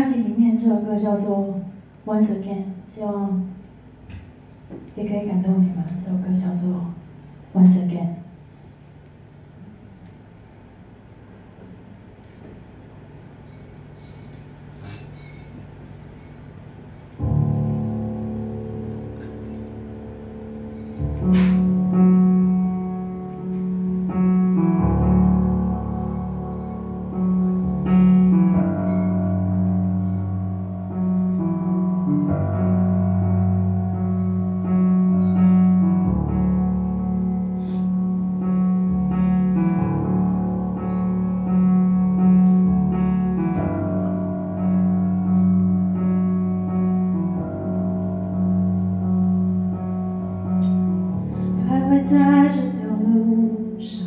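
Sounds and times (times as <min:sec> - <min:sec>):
slow piano ballad chords: 0:09.4 - 0:54.0
woman singing: 0:51.6 - 0:54.0.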